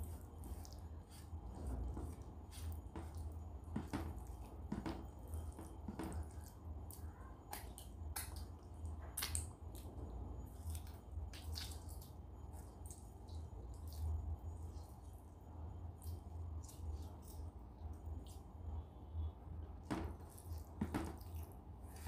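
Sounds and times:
fingers squelching through food: 0.0 - 15.2
low steady hum: 0.0 - 22.0.

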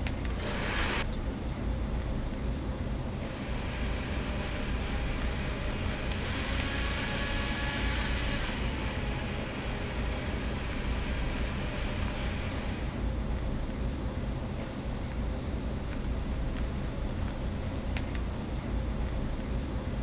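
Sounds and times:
blender whirring: 0.2 - 1.1, 3.2 - 13.0.

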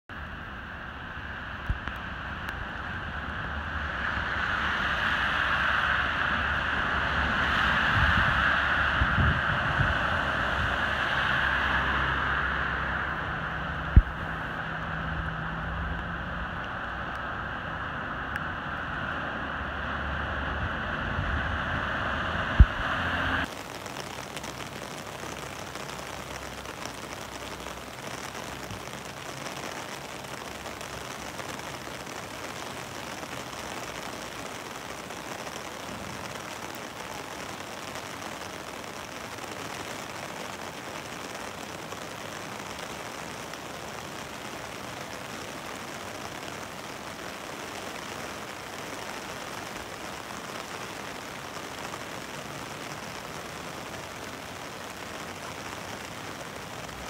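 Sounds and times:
water hissing: 3.2 - 15.6.

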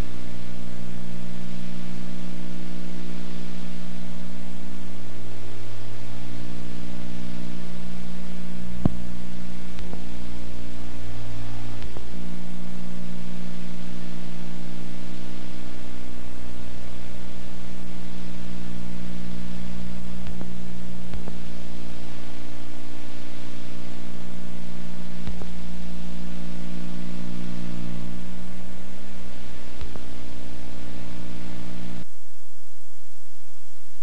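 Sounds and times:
electrical hum with hiss: 0.0 - 34.0
faint clicks: 9.7 - 10.1, 11.8 - 12.1, 20.2 - 21.4, 25.2 - 25.6, 29.7 - 30.1.

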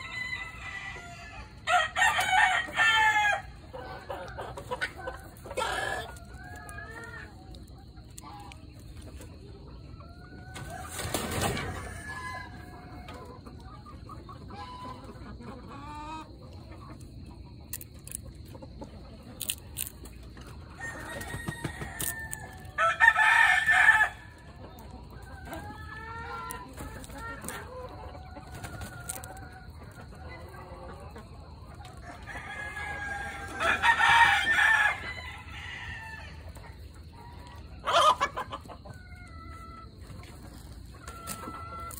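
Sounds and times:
rooster crowing: 0.0 - 3.7, 20.8 - 24.5, 32.1 - 36.4
chickens clucking: 0.0 - 41.9.

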